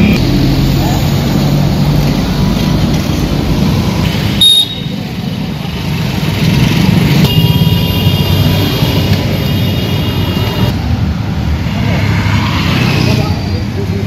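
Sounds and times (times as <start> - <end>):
rumble of vehicles: 0.0 - 14.0.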